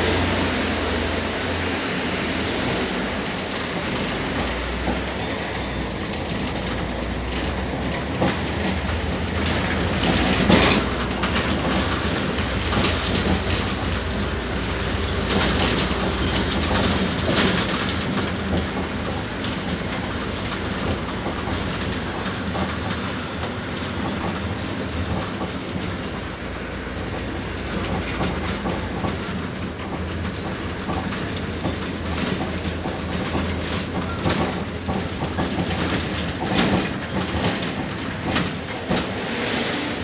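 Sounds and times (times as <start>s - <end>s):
bus engine hum: 0.0s - 40.0s
road noise: 0.0s - 40.0s
bus panels rattling: 3.3s - 39.2s.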